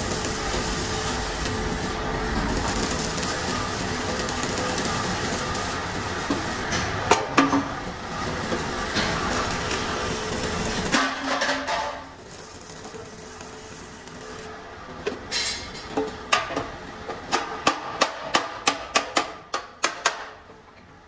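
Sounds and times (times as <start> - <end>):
welding arc crackling: 0.0 - 14.7.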